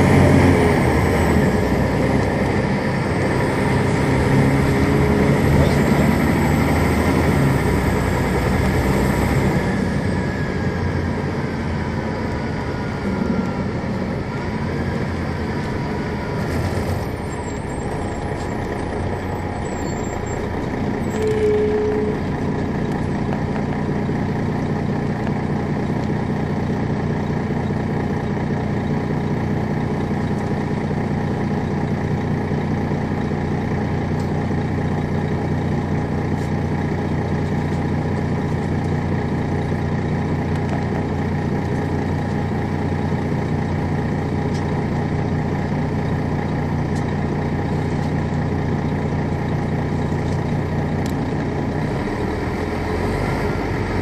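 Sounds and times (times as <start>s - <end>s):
bus engine whine slowing: 0.0s - 54.0s
diesel engine idling: 0.0s - 54.0s
short tone: 19.5s - 22.4s.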